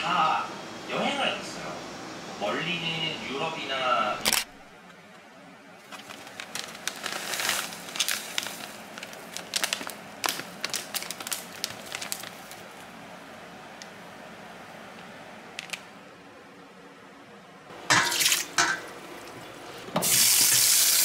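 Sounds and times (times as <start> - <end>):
dried seaweed crackling: 5.8 - 12.9
plastic bag crinkling: 5.8 - 12.9.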